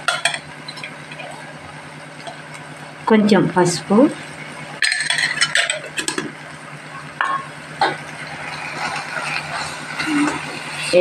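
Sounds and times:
utensils clinking on a steel pot: 4.8s - 6.3s.

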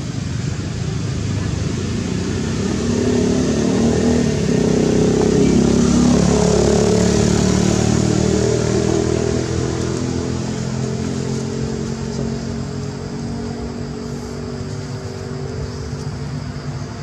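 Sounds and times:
vehicle engine running: 0.0s - 17.0s.

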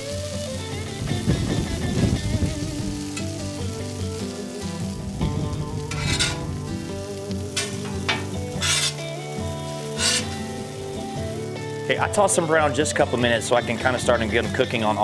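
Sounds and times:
potatoes sizzling on a griddle: 0.0s - 15.0s
metal spatula scraping griddle: 5.9s - 6.7s, 7.5s - 10.7s.

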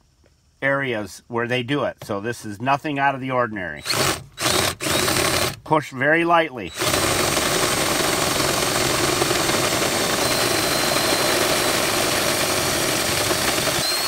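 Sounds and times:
drill grinding through steel: 3.8s - 5.6s, 6.6s - 14.0s.

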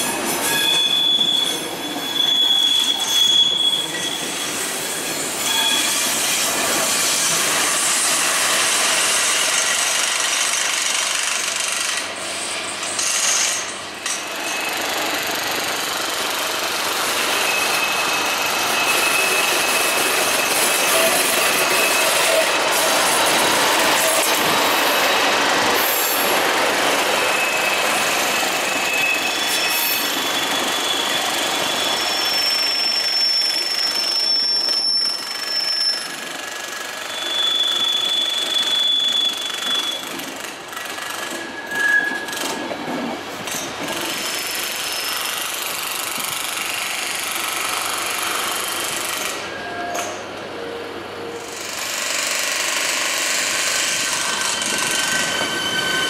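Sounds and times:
train wheels rumbling on rails: 0.0s - 56.0s
wheels squealing: 0.4s - 7.5s, 17.0s - 40.2s, 41.0s - 42.7s, 53.4s - 56.0s.

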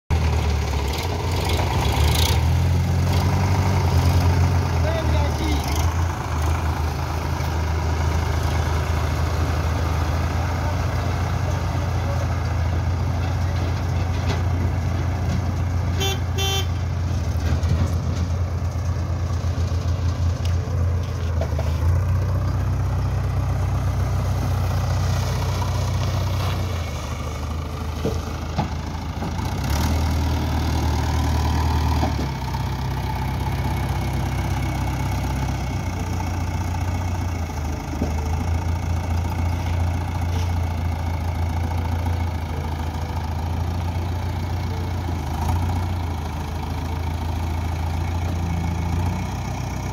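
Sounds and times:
diesel engine working: 0.1s - 49.9s
high-pitched toot: 16.0s - 16.8s.

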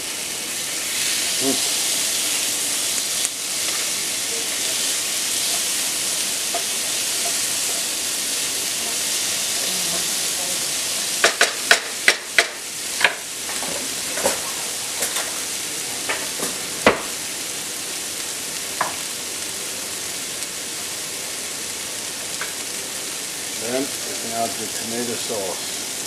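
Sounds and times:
vegetables sizzling in a frying pan: 0.0s - 26.0s
wooden spatula knocking on pan: 11.2s - 14.4s.

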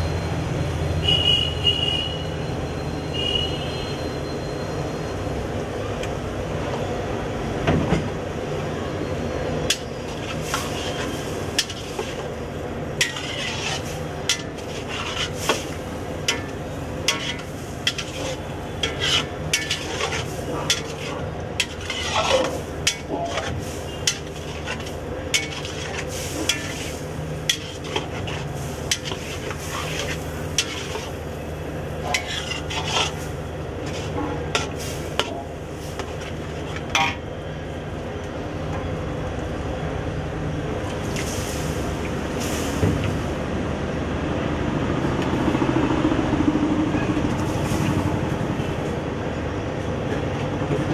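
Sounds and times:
metal ladle scraping iron pan: 9.7s - 12.3s, 13.0s - 31.3s, 32.0s - 37.2s
food sizzling: 10.0s - 37.2s.

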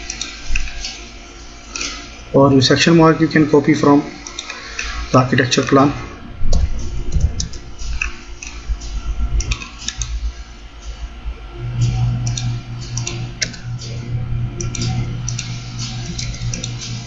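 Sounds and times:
steady low hum: 0.0s - 17.0s
keyboard and mouse clicks: 9.4s - 10.2s, 12.2s - 13.6s, 14.6s - 17.0s.

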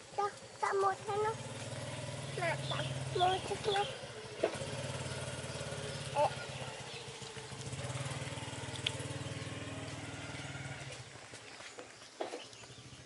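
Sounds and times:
small engine running: 0.0s - 11.4s.

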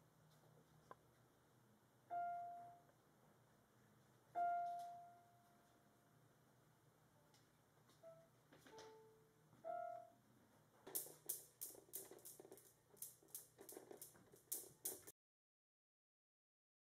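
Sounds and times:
electronic keyboard notes: 4.4s - 5.5s, 8.0s - 10.2s
newton's cradle balls clicking: 10.9s - 15.1s.

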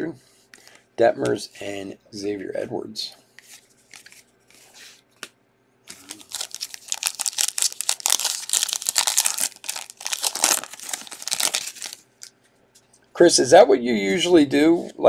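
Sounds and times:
foil wrapper crinkling: 5.9s - 12.3s.

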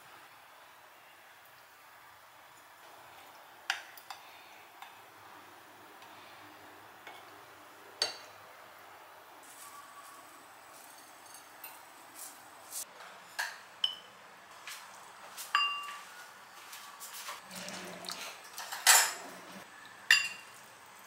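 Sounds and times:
utensils clinking on bowl and plates: 9.5s - 12.0s, 15.5s - 16.0s, 17.4s - 20.6s.

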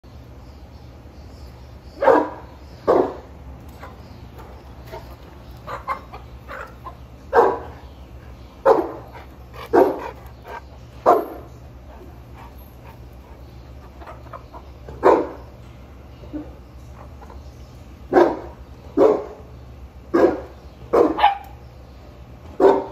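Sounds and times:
dog barking: 2.0s - 3.2s, 7.3s - 7.8s, 8.6s - 10.2s, 11.0s - 11.5s, 15.0s - 15.4s, 18.1s - 19.4s, 20.1s - 21.6s, 22.6s - 22.9s
hens clucking: 3.7s - 7.2s, 12.0s - 15.2s.

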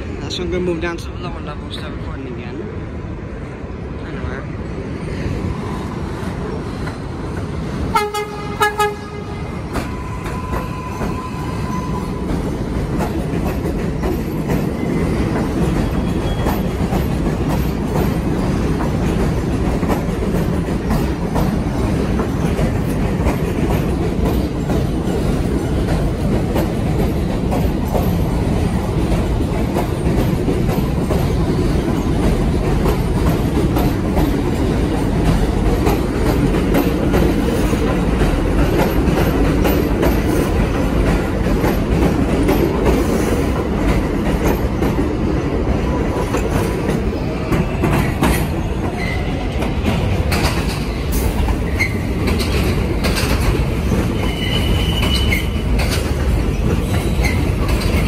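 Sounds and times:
train wheels rumbling on rails: 0.0s - 58.0s
train horn blasts: 7.9s - 12.0s
wheels clicking over rail joints: 46.2s - 58.0s.

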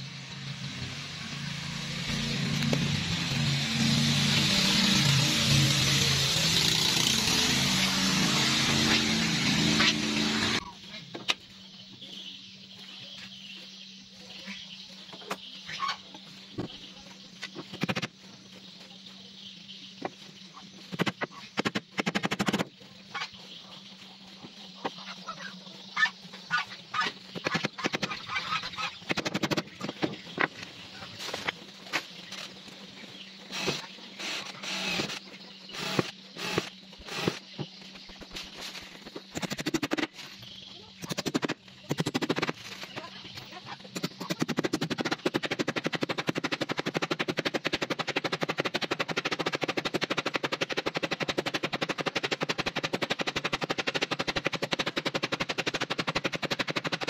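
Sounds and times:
rapid clicks: 20.9s - 22.7s, 27.4s - 30.7s, 39.0s - 40.2s, 43.9s - 57.0s.

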